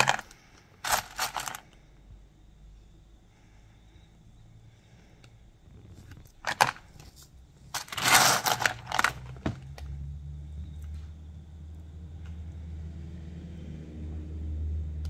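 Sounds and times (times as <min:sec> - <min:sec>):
scraping and rustling: 0:00.0 - 0:01.6, 0:05.7 - 0:09.8.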